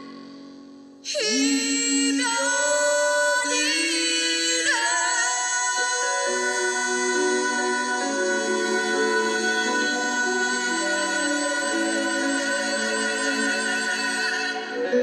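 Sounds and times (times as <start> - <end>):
slow sliding melody: 0.0 - 15.0.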